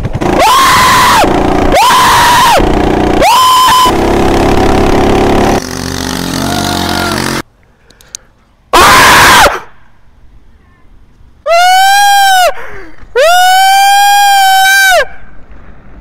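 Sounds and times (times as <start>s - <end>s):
man screaming loudly: 0.4s - 2.6s, 6.3s - 7.4s, 8.8s - 9.6s.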